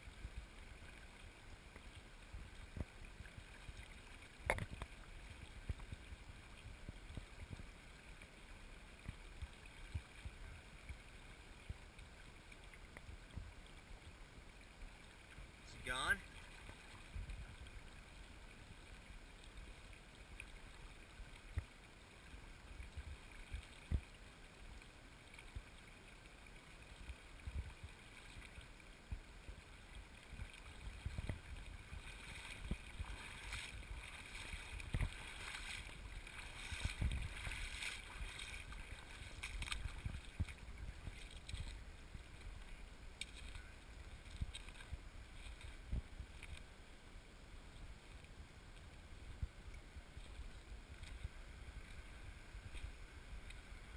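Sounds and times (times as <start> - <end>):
stream running over gravel: 0.0 - 53.9
wind buffeting microphone: 36.6 - 38.8.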